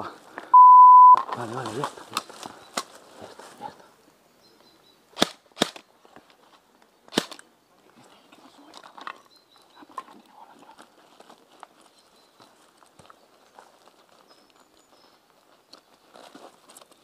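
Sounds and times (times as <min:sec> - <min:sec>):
airsoft rifle shots: 0:05.2 - 0:05.9, 0:07.1 - 0:07.4.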